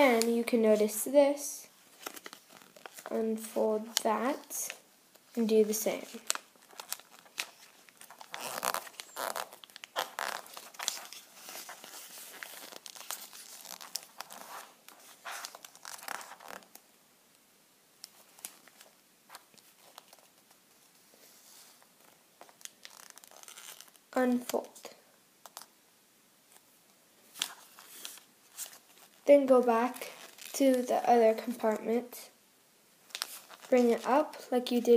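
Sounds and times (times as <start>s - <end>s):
paper rustling and crinkling: 1.8s - 16.8s, 18.0s - 24.7s, 27.3s - 29.3s, 30.0s - 31.7s, 33.1s - 34.2s.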